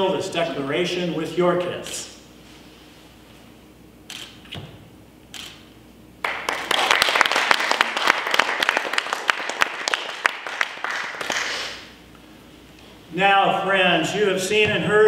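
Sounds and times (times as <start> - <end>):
crowd applauding: 6.2 - 11.8.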